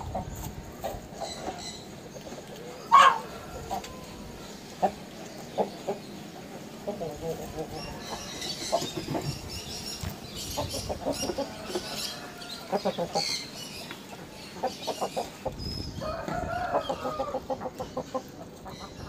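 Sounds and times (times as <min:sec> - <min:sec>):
chickens clucking: 0:00.0 - 0:19.0
chicken drawn-out call: 0:02.7 - 0:05.0.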